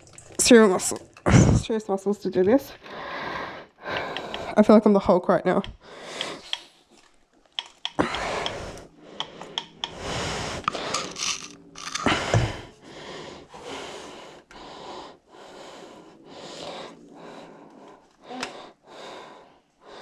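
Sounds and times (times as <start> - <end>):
heavy effortful breathing: 8.0 - 20.0.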